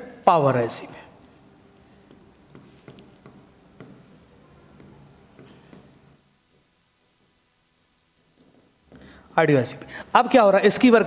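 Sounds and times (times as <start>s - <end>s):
stylus tapping and scratching on screen: 1.2s - 9.9s.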